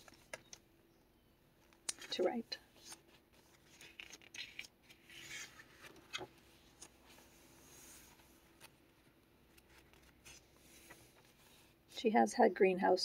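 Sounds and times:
paper page turning: 0:00.0 - 0:00.6, 0:01.6 - 0:08.8, 0:09.5 - 0:11.7.

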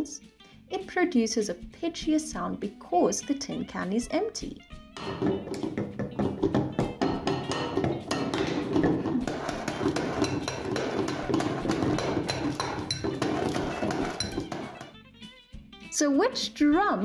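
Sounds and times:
chopstick beating glass bowl: 0:05.0 - 0:15.0
chopstick drumming on tin can drum: 0:05.0 - 0:15.0.

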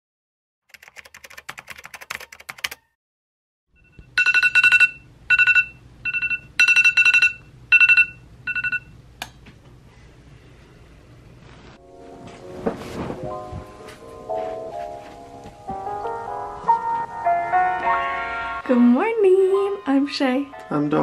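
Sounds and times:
phone alarm beeps: 0:03.8 - 0:08.9.

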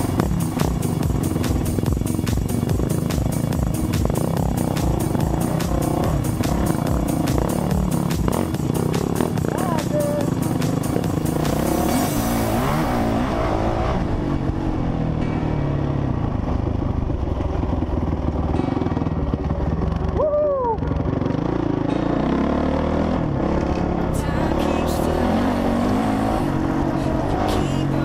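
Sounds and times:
rough-track rattle: 0:00.0 - 0:13.3
dirt bike engine revving: 0:00.0 - 0:20.2, 0:20.8 - 0:28.0
wind: 0:00.0 - 0:28.0.

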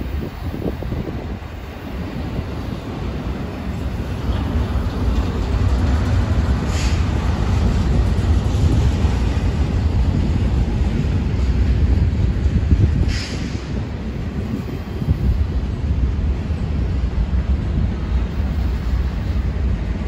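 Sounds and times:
freight train wheels rumbling: 0:00.0 - 0:20.0
brief higher hiss: 0:13.1 - 0:13.6.

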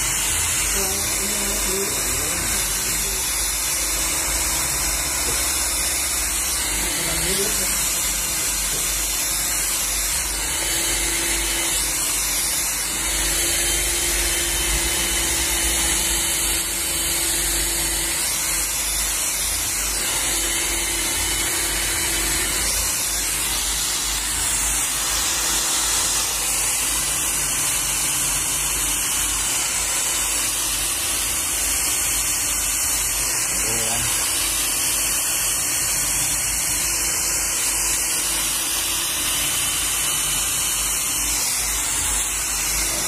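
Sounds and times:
hair dryer blowing air: 0:00.0 - 0:43.0.

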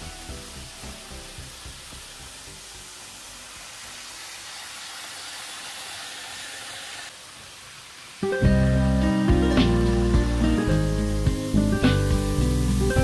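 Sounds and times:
model trains whirring on track: 0:00.0 - 0:08.0.

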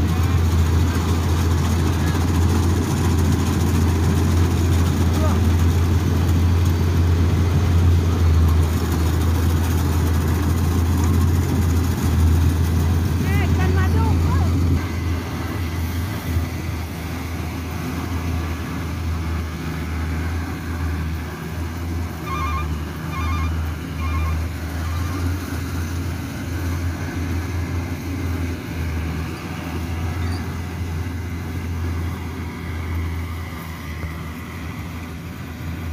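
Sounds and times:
combine harvester engine drone: 0:00.0 - 0:35.9
short high beeps: 0:22.2 - 0:24.4.

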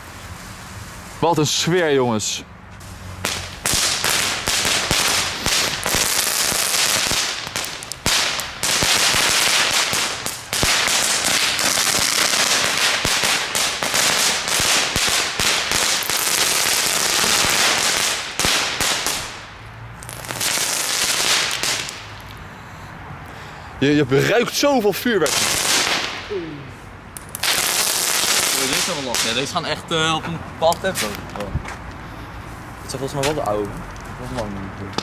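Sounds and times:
crackling firework: 0:00.0 - 0:01.7, 0:02.8 - 0:22.5, 0:25.2 - 0:29.7.

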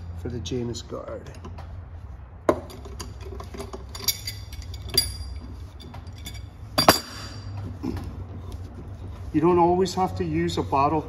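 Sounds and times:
metal clinks with ringing: 0:02.6 - 0:07.5.

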